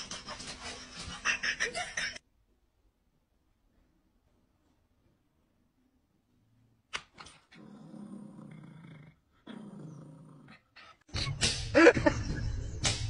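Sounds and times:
dog growling: 7.5 - 11.1.

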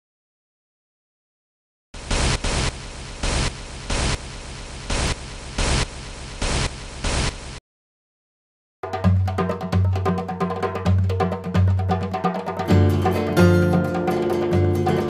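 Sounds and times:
static hiss with surges: 2.0 - 7.6.

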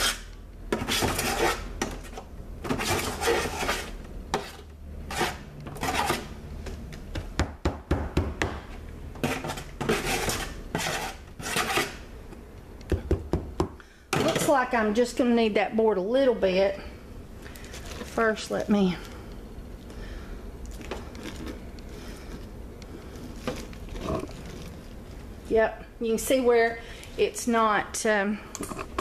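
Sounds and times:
spoon scraping metal pan: 0.0 - 6.3, 9.2 - 12.0.

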